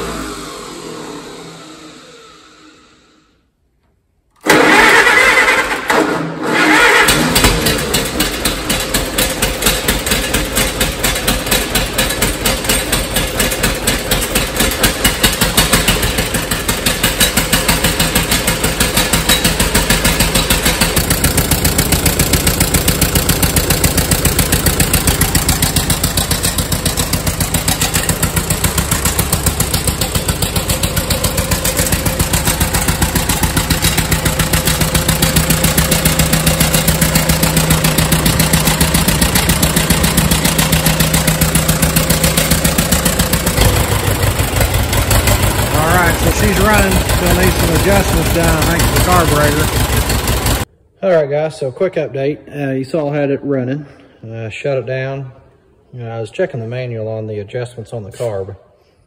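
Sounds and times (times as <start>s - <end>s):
tractor engine starting and running: 0.0s - 50.9s.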